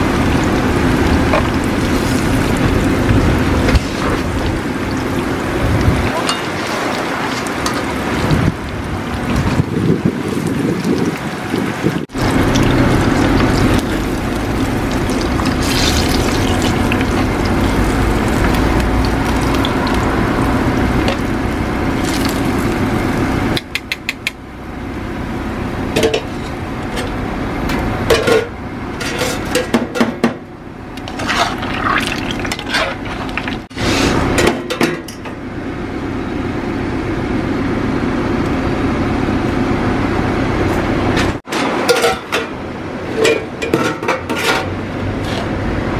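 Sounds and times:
oil sizzling deep-frying: 0:00.0 - 0:28.2, 0:30.6 - 0:34.8
metal utensils clinking on pan: 0:06.1 - 0:07.0, 0:41.9 - 0:42.5.

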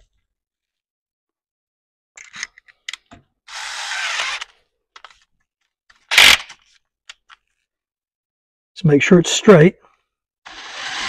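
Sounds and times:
cordless drill running: 0:03.5 - 0:04.5, 0:10.5 - 0:11.0.

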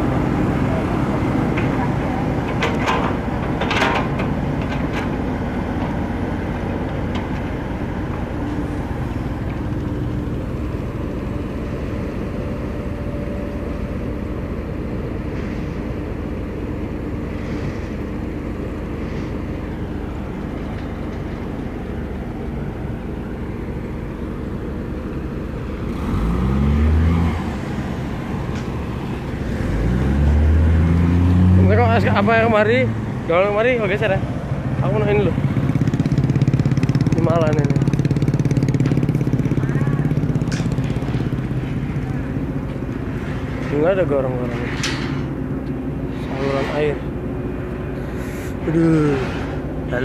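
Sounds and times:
construction machinery diesel engines: 0:00.0 - 0:50.0
engine revving: 0:25.8 - 0:43.7.

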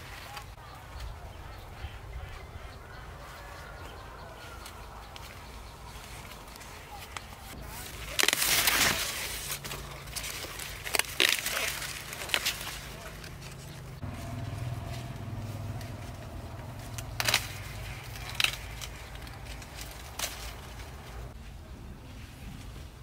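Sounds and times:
corn leaves rustling: 0:00.0 - 0:23.0
corn ears snapping: 0:04.4 - 0:21.4.

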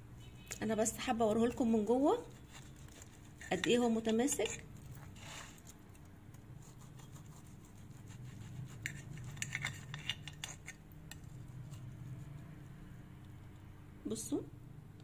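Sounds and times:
knife scraping a plate: 0:02.4 - 0:05.7, 0:08.0 - 0:11.9.

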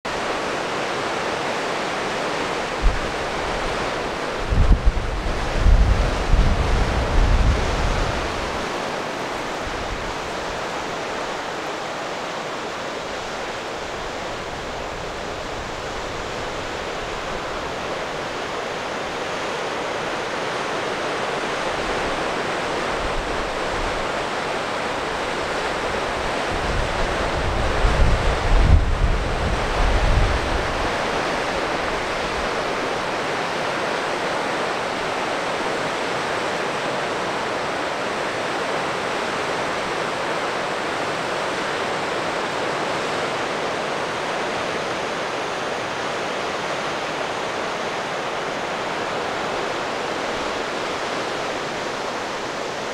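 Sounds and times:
river rushing over rapids: 0:00.1 - 0:52.9
wind buffeting microphone: 0:02.4 - 0:10.8, 0:21.5 - 0:33.1.

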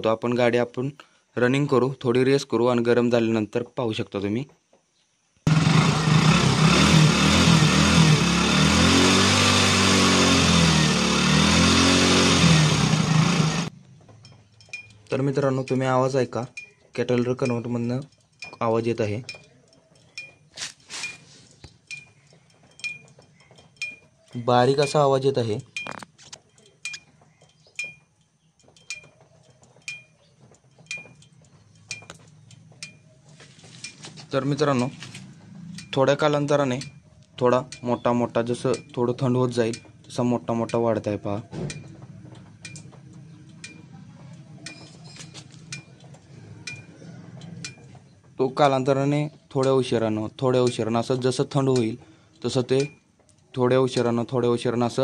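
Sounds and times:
motorcycle engine revving: 0:05.5 - 0:15.1, 0:28.8 - 0:49.4
hot exhaust ticking: 0:05.5 - 0:20.6, 0:21.7 - 0:33.2, 0:33.9 - 0:55.0.

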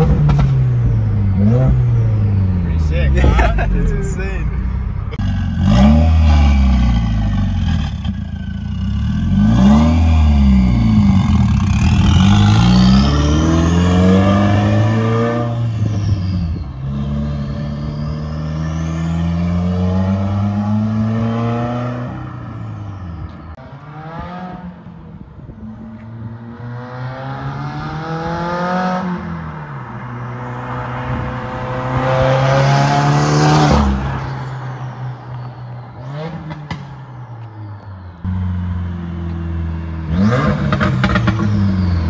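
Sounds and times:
car engine accelerating hard: 0:00.0 - 0:22.6, 0:38.4 - 0:42.0.

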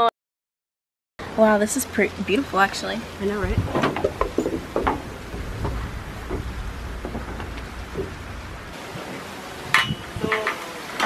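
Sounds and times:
wind buffeting microphone: 0:01.3 - 0:10.5.

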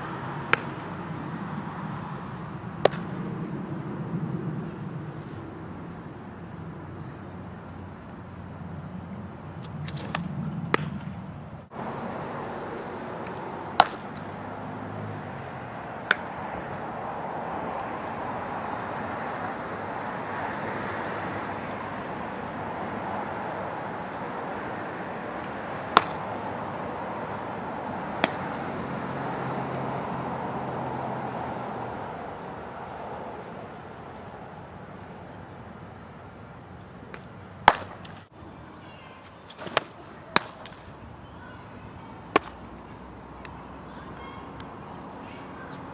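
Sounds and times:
background noise: 0:00.0 - 0:45.9
ball smacking into mitt: 0:00.5 - 0:00.9, 0:02.8 - 0:03.2, 0:09.8 - 0:11.2, 0:13.2 - 0:14.4, 0:25.4 - 0:26.3, 0:28.2 - 0:28.6, 0:37.1 - 0:38.2, 0:39.5 - 0:40.8, 0:42.3 - 0:42.6.

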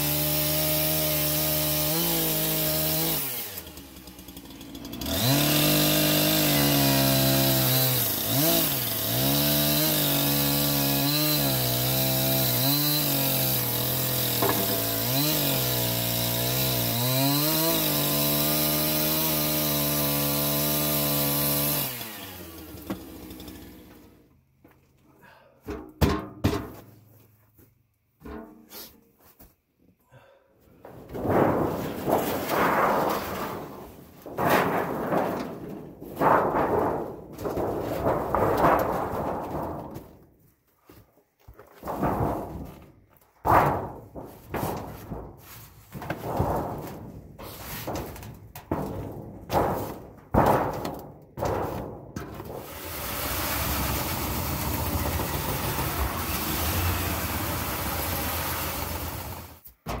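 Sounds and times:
steel sheet flexing and rumbling: 0:30.8 - 0:40.4, 0:41.8 - 0:52.8.

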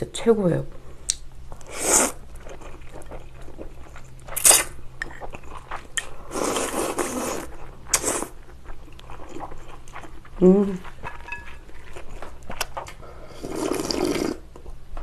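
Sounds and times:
noodle slurping: 0:06.3 - 0:08.4, 0:13.2 - 0:14.4.

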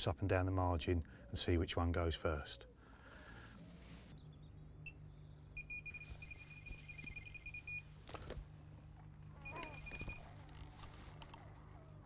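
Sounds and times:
electronic bite alarm beeping: 0:05.6 - 0:07.9, 0:09.4 - 0:10.3.

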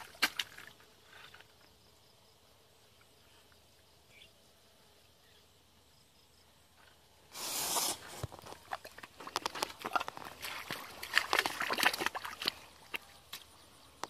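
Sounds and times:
muddy water splashing: 0:00.0 - 0:00.7, 0:07.7 - 0:13.7
squelching footsteps in mud: 0:08.2 - 0:13.6.

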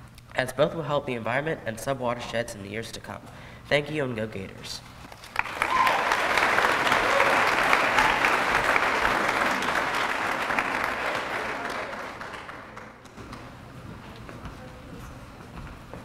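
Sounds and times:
audience clapping: 0:05.2 - 0:13.2.

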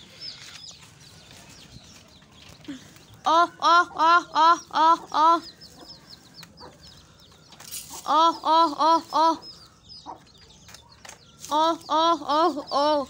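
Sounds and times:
chicks peeping: 0:00.0 - 0:13.0
hen clucking: 0:03.0 - 0:10.5.

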